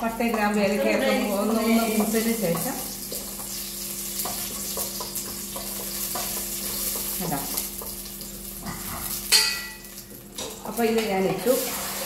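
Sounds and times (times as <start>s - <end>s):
spices sizzling in butter: 0.0s - 12.0s
spoon stirring and scraping: 0.3s - 9.4s.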